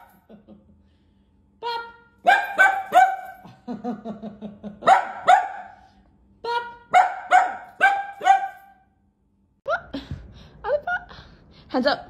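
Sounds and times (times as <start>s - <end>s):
small dog yapping: 6.9s - 8.7s.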